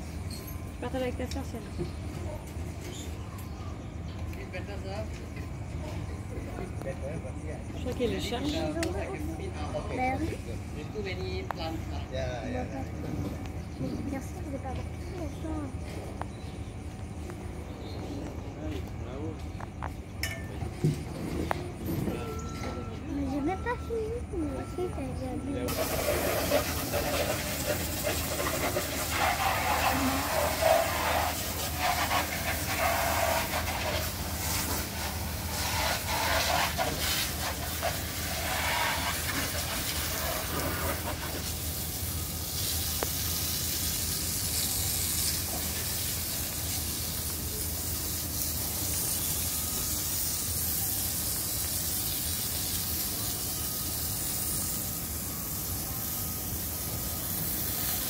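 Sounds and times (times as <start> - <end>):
steady hissing noise: 23.6 - 58.0.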